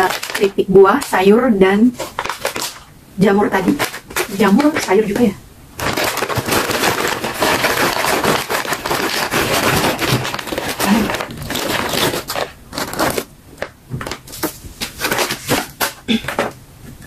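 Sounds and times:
chips pouring from crinkly bag: 0.0 - 0.6, 5.8 - 13.3.

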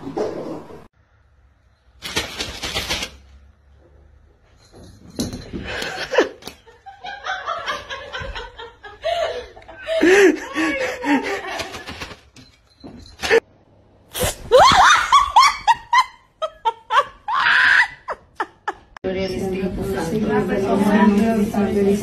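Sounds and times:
person laughing: 8.1 - 11.8.

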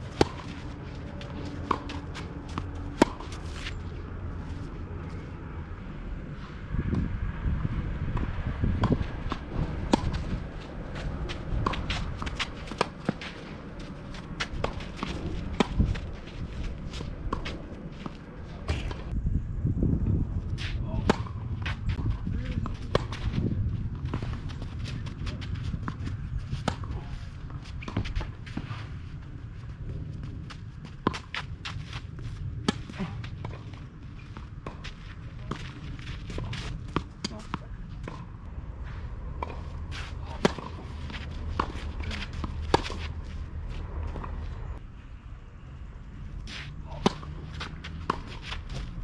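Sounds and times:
footsteps shuffling on clay: 10.0 - 19.1, 21.6 - 38.2, 46.4 - 49.0.

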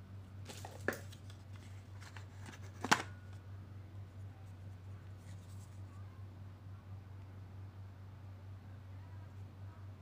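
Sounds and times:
steady low hum: 0.0 - 10.0
faint rustling of handling: 4.1 - 6.1.

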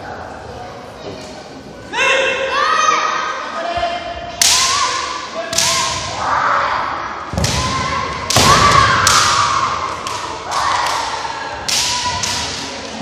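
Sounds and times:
bamboo swords striking: 4.4 - 6.2, 7.3 - 12.9
fencers shouting: 4.5 - 12.8.

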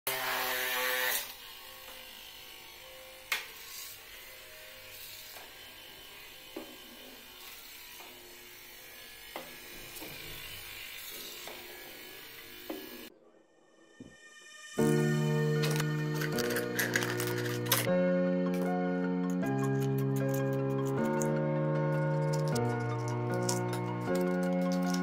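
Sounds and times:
small electric motor whirring: 0.1 - 13.1.

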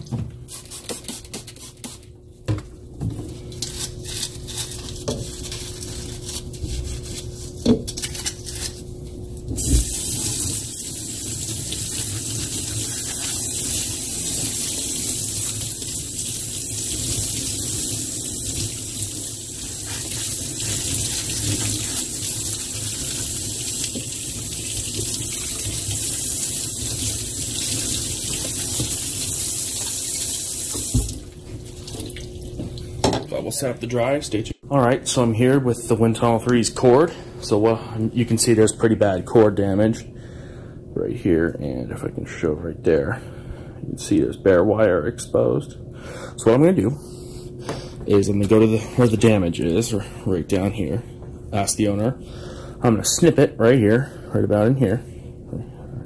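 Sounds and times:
tap water running: 9.6 - 33.0
bristle brush scrubbing plastic: 11.4 - 15.6, 19.5 - 24.0.

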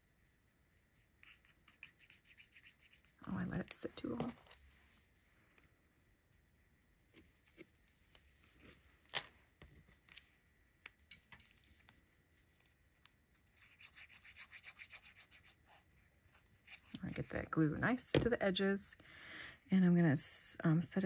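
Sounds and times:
rubbing strokes on paper: 1.2 - 3.2, 13.6 - 15.9.

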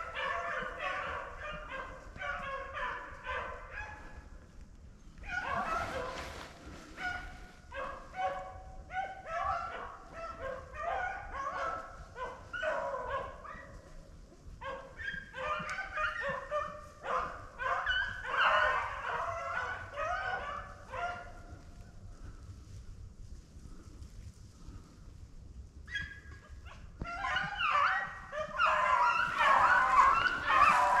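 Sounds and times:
dogs baying: 0.0 - 4.2, 14.6 - 21.6, 25.9 - 31.0.

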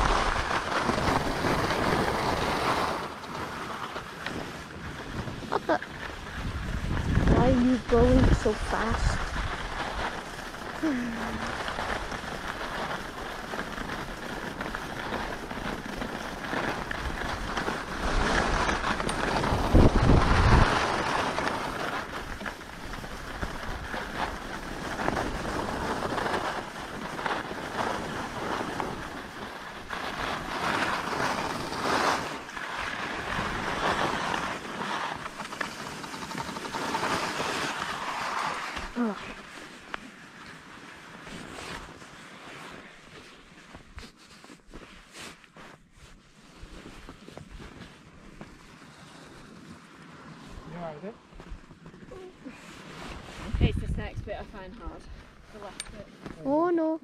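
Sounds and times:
wind rushing over microphone: 0.0 - 3.2, 4.6 - 35.5, 50.5 - 56.1
skis scraping over snow: 0.0 - 57.0.

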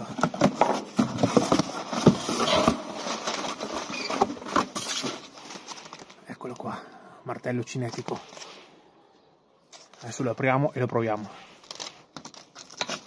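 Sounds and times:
plastic blister pack crinkling: 11.5 - 13.0.

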